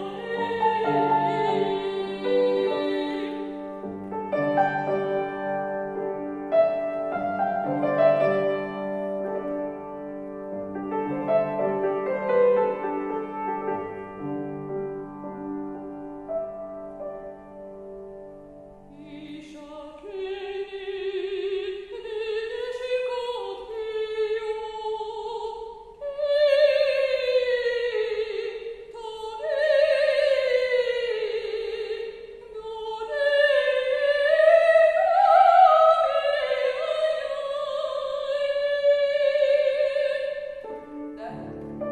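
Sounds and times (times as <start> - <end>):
woman singing operatically: 0.0 - 3.7, 18.9 - 41.6
piano accompaniment: 0.0 - 19.0, 40.6 - 41.9.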